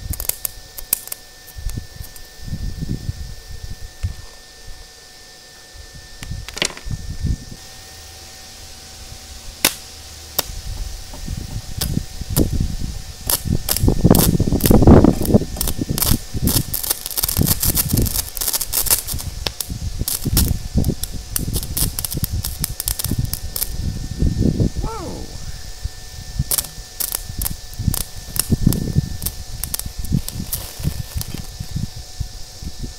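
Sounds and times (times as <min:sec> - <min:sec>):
welding arc crackling: 0:00.0 - 0:02.3, 0:11.3 - 0:25.3, 0:26.3 - 0:31.9.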